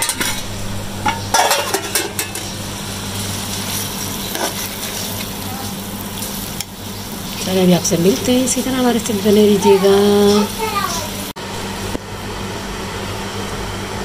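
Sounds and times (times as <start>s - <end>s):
steady hiss and low hum: 0.0s - 14.0s
metal spoon scraping a pot: 3.7s - 5.2s.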